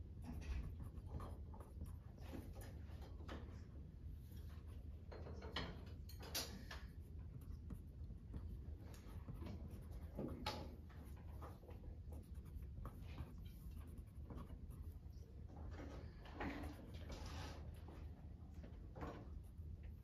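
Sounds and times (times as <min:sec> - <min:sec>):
low steady hum: 0:00.0 - 0:20.0
pencil scratching on paper: 0:07.2 - 0:15.2.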